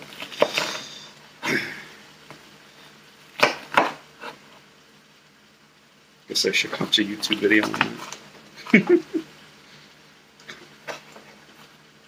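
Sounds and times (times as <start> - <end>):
knife cutting onion on board: 0.2 - 0.9, 3.4 - 4.4.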